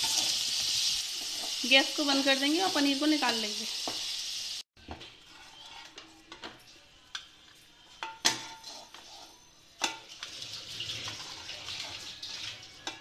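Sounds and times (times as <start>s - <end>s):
hot ghee sizzling: 0.0s - 6.0s, 8.0s - 13.0s.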